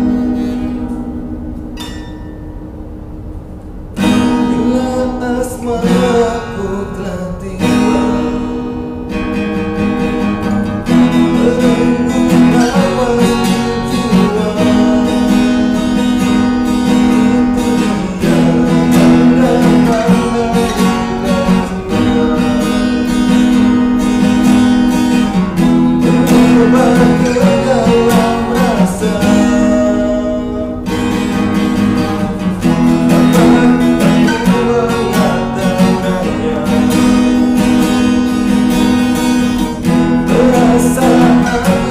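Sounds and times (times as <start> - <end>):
acoustic guitar strummed: 0.0 - 41.9
man singing: 4.3 - 8.8, 10.5 - 23.9, 25.2 - 31.4, 32.0 - 38.2, 39.7 - 41.9.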